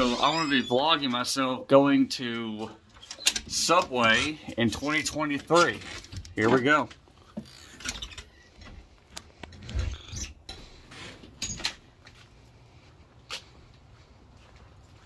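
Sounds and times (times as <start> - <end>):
door opening and shutting: 0.0 - 1.1, 2.9 - 4.6, 7.4 - 8.8, 9.5 - 11.9
footsteps: 12.0 - 15.0.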